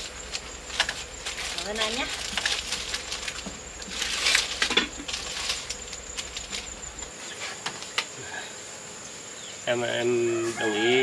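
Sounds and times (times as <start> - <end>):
plastic wrapping crinkling: 0.3 - 6.7.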